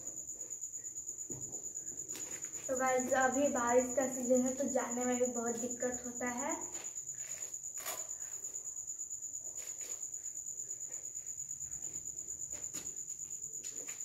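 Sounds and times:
cricket chirping: 0:00.0 - 0:14.0
shoes clicking and rustling: 0:02.0 - 0:03.2, 0:12.4 - 0:14.0.

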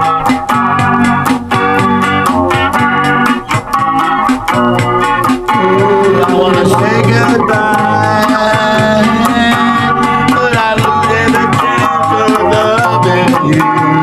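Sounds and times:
guitar and keyboard music: 0:00.0 - 0:14.0
steady drum beat: 0:00.0 - 0:14.0
man singing: 0:05.5 - 0:14.0.

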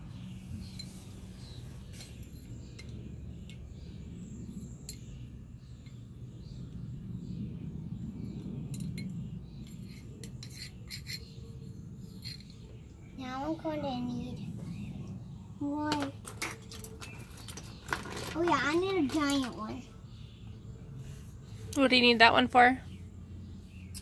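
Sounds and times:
steady low rumble: 0:00.0 - 0:17.4.

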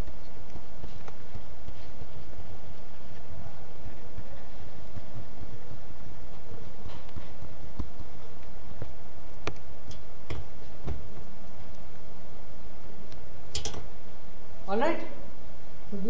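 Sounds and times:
low room rumble: 0:00.0 - 0:16.0
sharp clicks and taps: 0:04.9 - 0:11.9.

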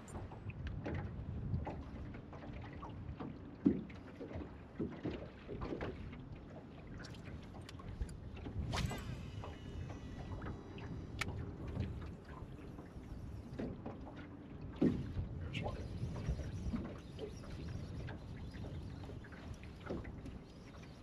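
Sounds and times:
waves slapping against boat hull: 0:00.0 - 0:21.0
fishing reel whirring: 0:08.0 - 0:13.7, 0:15.6 - 0:21.0.

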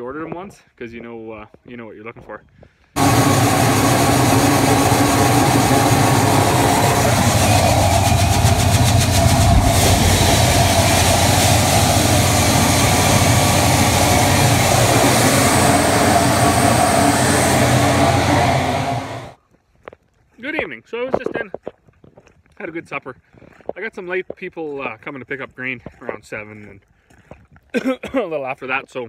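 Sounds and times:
fast rattle: 0:03.0 - 0:18.1
engine drone: 0:03.0 - 0:19.4
grain auger running: 0:03.0 - 0:19.4.

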